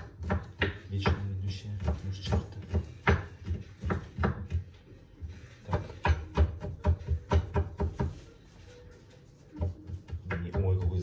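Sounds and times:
knife chopping on wooden board: 0:00.0 - 0:04.8, 0:05.6 - 0:08.2, 0:09.6 - 0:11.0.

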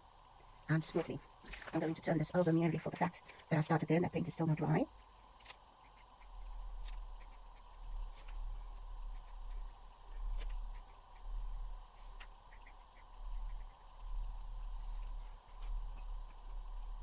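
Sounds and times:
low hum: 0:00.0 - 0:17.0
pen tapping and scratching paper: 0:05.4 - 0:08.4, 0:09.1 - 0:13.8.

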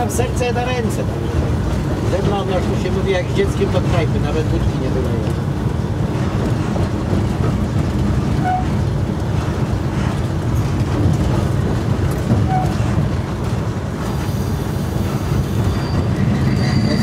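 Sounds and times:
locomotive engine drone: 0:00.0 - 0:17.0
wheels rumbling on rails: 0:00.0 - 0:17.0.

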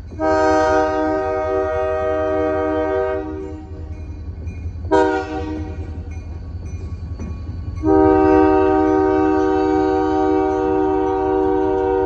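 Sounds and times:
locomotive low rumble: 0:00.0 - 0:12.0
locomotive air horn blasts: 0:00.2 - 0:03.7, 0:04.9 - 0:05.9, 0:07.8 - 0:12.0.

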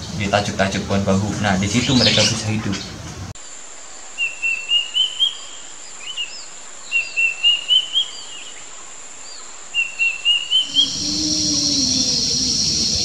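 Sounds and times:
bird calling rising whistles: 0:09.8 - 0:13.0
faint high whine: 0:10.6 - 0:13.0.

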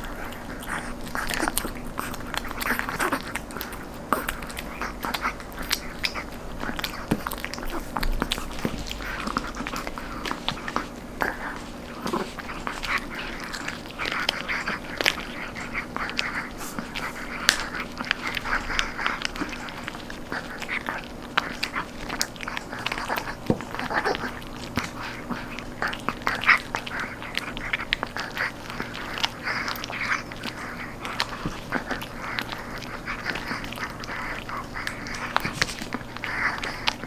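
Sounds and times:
dog crunching a treat: 0:00.0 - 0:37.0.

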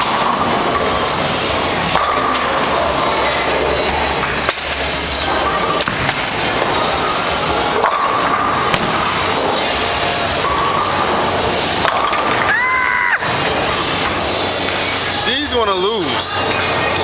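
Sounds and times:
bowling balls and pins clattering: 0:00.0 - 0:12.5
background music: 0:00.0 - 0:17.0.

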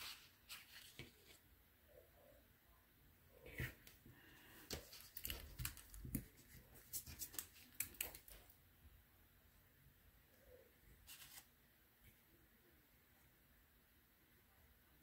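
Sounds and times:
paper rustling and scraping: 0:00.0 - 0:01.4, 0:04.7 - 0:07.8, 0:11.0 - 0:11.5.

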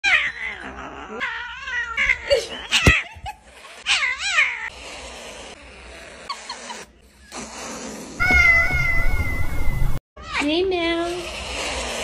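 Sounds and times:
kitten yowling: 0:08.2 - 0:09.4.

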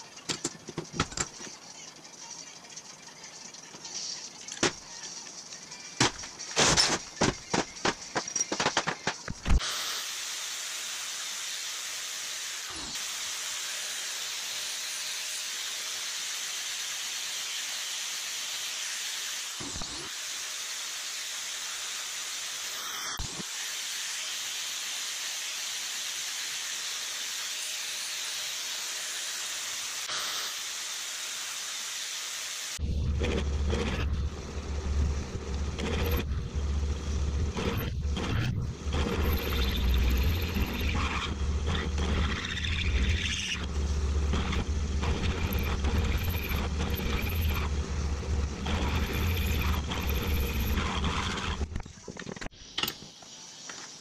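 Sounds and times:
drill bit cutting metal: 0:09.3 - 0:51.8
angle grinder on steel: 0:09.6 - 0:51.7
drill press motor hum: 0:32.8 - 0:51.8.

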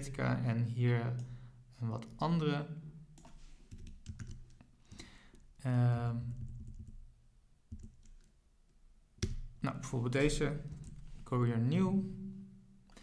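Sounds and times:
typing on a computer keyboard: 0:03.2 - 0:04.7, 0:06.4 - 0:07.0, 0:07.7 - 0:08.4.

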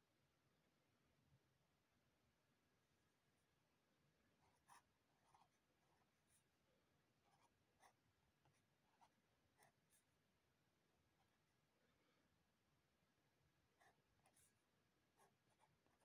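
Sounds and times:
pen scratching on paper: 0:04.3 - 0:06.5, 0:07.2 - 0:10.1, 0:13.6 - 0:16.0.

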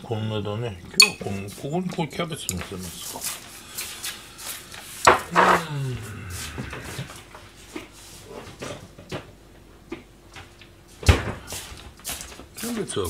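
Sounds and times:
tableware clicks: 0:01.0 - 0:01.4.

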